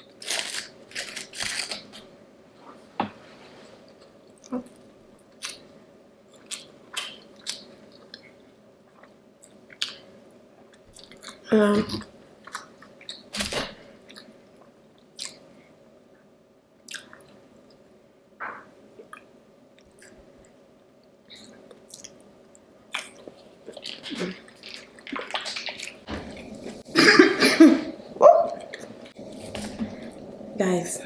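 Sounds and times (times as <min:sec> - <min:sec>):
faint steady hum: 0:00.0 - 0:31.0
person chewing food: 0:14.0 - 0:15.4, 0:21.3 - 0:26.9.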